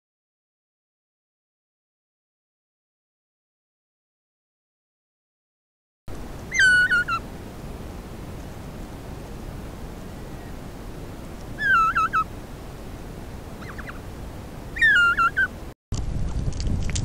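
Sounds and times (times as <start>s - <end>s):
steady rushing noise: 6.1s - 17.0s
bird whistling call: 6.5s - 7.2s, 11.6s - 12.3s, 13.6s - 14.1s, 14.7s - 15.6s.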